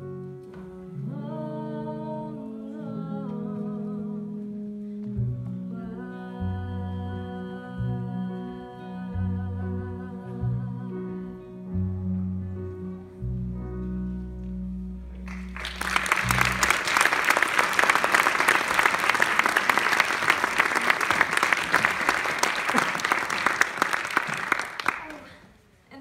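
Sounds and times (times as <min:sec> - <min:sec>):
audience applause: 0:15.3 - 0:25.5.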